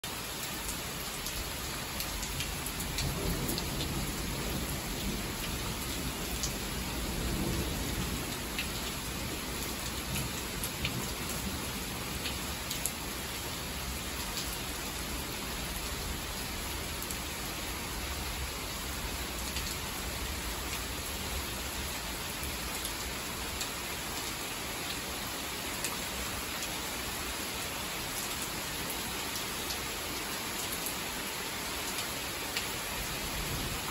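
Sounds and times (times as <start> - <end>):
heavy rain pouring: 0.0 - 33.9
low rumble of thunder: 2.5 - 12.0.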